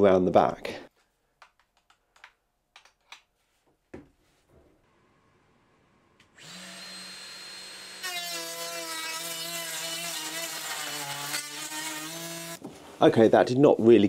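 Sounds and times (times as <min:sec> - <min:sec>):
router spinning with a whine: 0:06.3 - 0:08.3
router cutting into board: 0:06.3 - 0:12.6.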